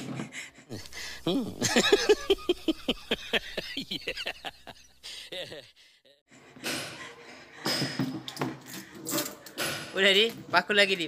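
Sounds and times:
voices: 0:00.7 - 0:04.5
background hiss: 0:00.7 - 0:05.6
burst of rapid laughter: 0:00.8 - 0:05.7.

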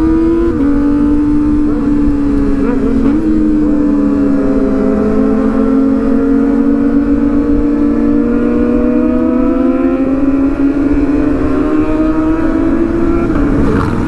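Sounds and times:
motorcycle engine running: 0:12.3 - 0:14.0
low rumbling noise: 0:12.6 - 0:14.0.

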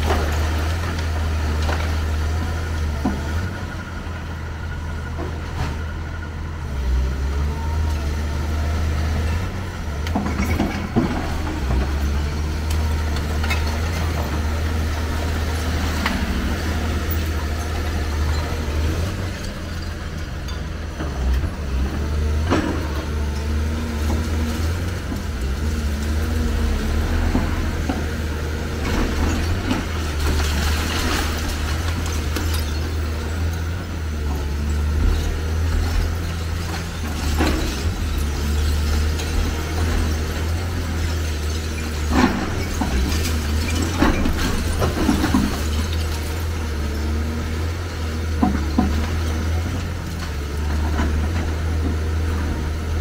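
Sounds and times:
excavator diesel engine: 0:00.0 - 0:53.0
concrete rubble crashing: 0:09.9 - 0:21.0, 0:22.2 - 0:53.0.

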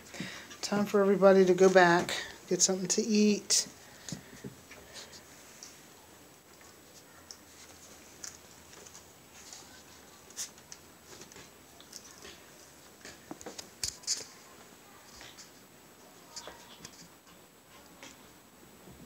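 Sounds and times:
puppies playing on rugs: 0:03.6 - 0:19.0.

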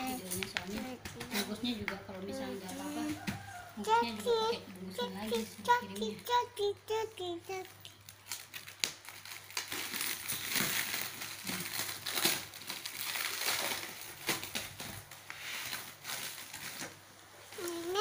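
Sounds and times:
plastic wrapping crinkling: 0:07.5 - 0:18.0.

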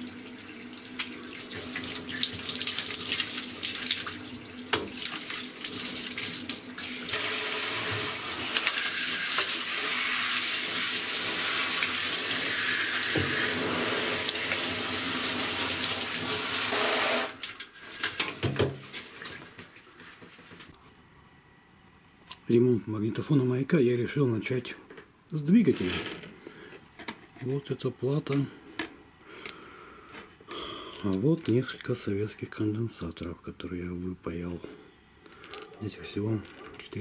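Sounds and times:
shower water running: 0:00.0 - 0:20.5.

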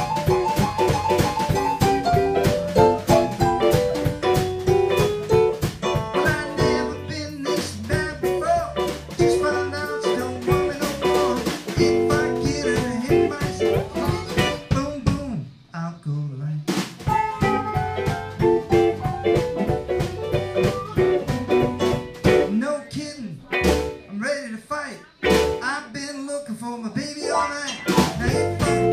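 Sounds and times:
electric guitar: 0:00.0 - 0:14.8, 0:17.1 - 0:22.6, 0:25.2 - 0:25.7, 0:27.2 - 0:28.9
drum kit: 0:00.0 - 0:15.7, 0:16.6 - 0:22.8, 0:23.4 - 0:24.1, 0:25.2 - 0:25.7, 0:27.0 - 0:28.9.

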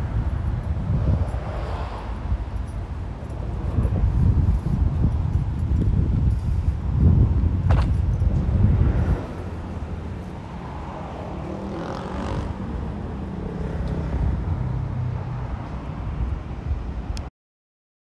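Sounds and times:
vehicle engine humming: 0:00.0 - 0:16.7.

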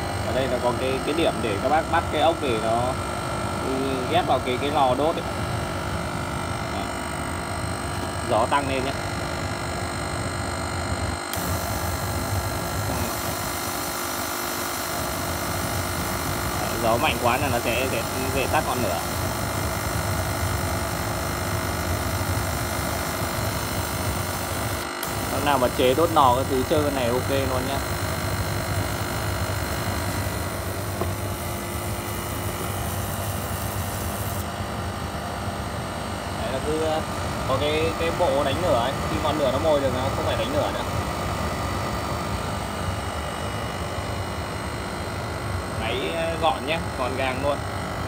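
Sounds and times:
oil burner fan and flame rushing: 0:00.0 - 0:48.0
constant low hum: 0:03.6 - 0:35.1
diesel burner firing: 0:11.3 - 0:34.6.

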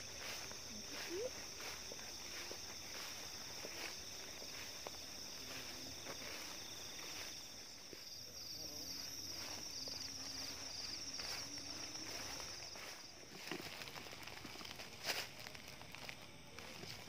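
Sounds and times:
footsteps through tall grass: 0:00.0 - 0:17.0
night insects chirping: 0:00.0 - 0:17.0.

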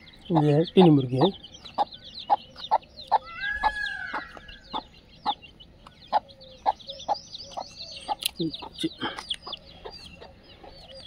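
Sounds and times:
chicks peeping: 0:00.0 - 0:11.0
hens clucking: 0:00.3 - 0:11.0
long drawn-out chicken call: 0:03.2 - 0:04.6.

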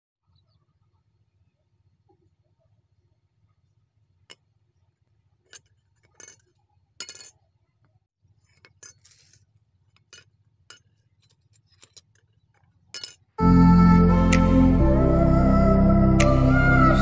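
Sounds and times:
metal hinges clinking on concrete: 0:05.4 - 0:07.4, 0:10.0 - 0:13.4.

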